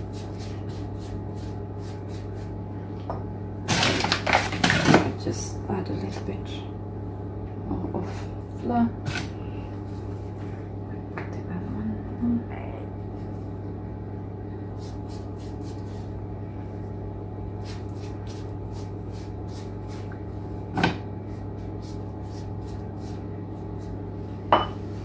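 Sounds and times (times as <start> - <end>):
pastry brush dabbing dough: 0.0 - 2.6, 14.8 - 16.2, 17.5 - 20.5, 21.3 - 24.4
low electrical hum: 0.0 - 25.0.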